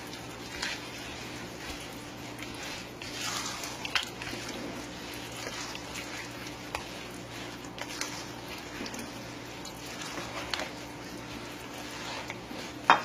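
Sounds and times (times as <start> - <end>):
spoon stirring thick batter: 0.0 - 13.0.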